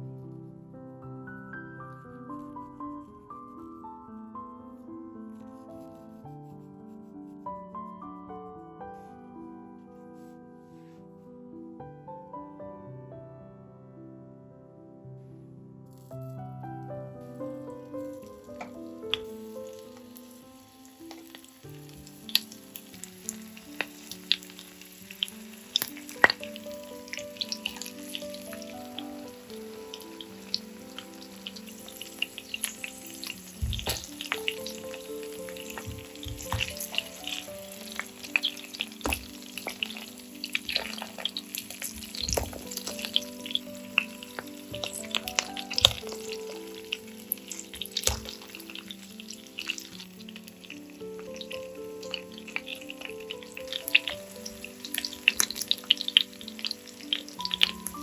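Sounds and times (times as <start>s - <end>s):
vegetables sizzling in a pan: 18.2s - 58.0s
fork knocking in a pan: 35.7s - 37.4s.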